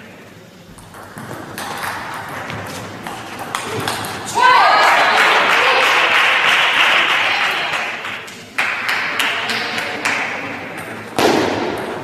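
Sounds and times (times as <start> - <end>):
table tennis balls ticking: 0.7 - 4.4
spectators applauding: 4.4 - 10.4.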